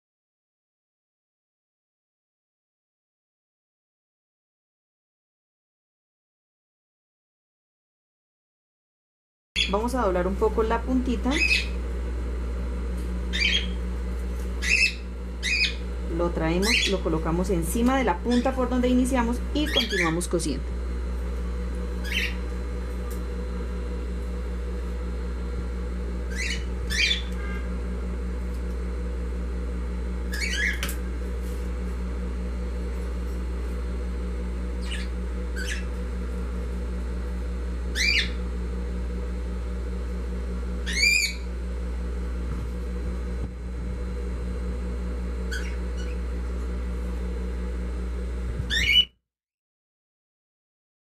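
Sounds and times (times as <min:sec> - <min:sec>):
bird chirping: 0:13.3 - 0:13.8, 0:14.6 - 0:15.8, 0:22.0 - 0:22.4, 0:26.3 - 0:27.3, 0:34.8 - 0:35.9.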